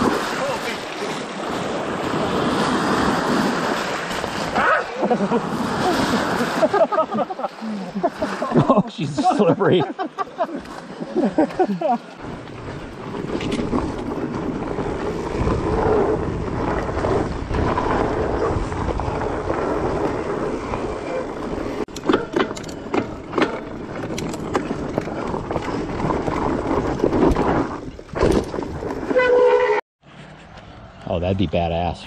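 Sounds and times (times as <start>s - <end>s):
bike tyres rolling on trail: 0.0s - 8.7s, 10.0s - 31.6s
bike knocking and rattling: 12.2s - 30.7s.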